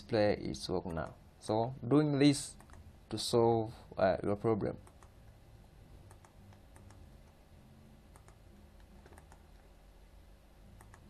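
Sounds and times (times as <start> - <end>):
low room hum: 0.0 - 11.0
mouse and keyboard clicks: 6.1 - 7.0, 8.1 - 9.6, 10.8 - 11.0.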